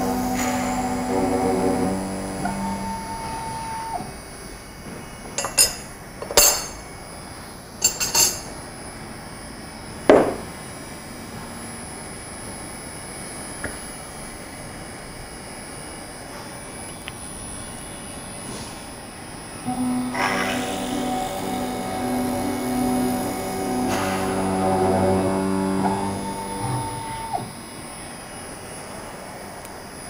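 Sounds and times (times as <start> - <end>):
machine motor hum: 0.0 - 5.9, 16.7 - 30.0.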